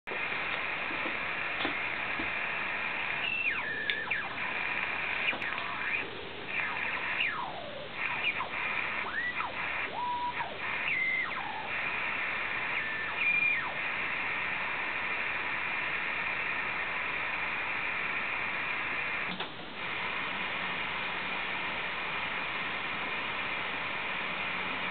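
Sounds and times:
radio static hiss: 0:00.1 - 0:24.9
radio whistles sliding in pitch: 0:02.4 - 0:19.3.

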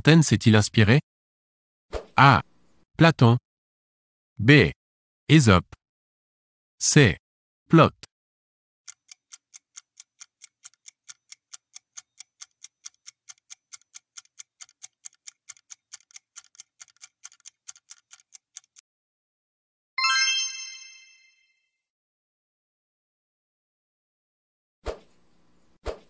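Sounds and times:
bright chime: 0:20.0 - 0:21.6.

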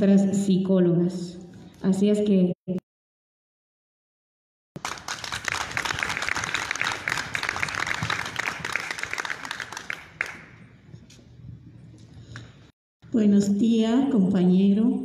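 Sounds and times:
people clapping: 0:04.8 - 0:10.7.

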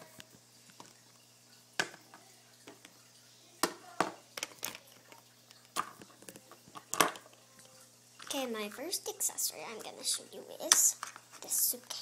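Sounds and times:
plastic toys clicking and knocking: 0:03.6 - 0:07.4, 0:10.6 - 0:11.6.

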